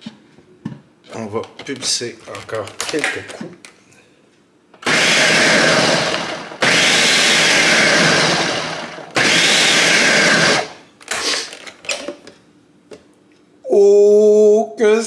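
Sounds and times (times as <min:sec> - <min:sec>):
blender pulsing: 0:04.8 - 0:10.8.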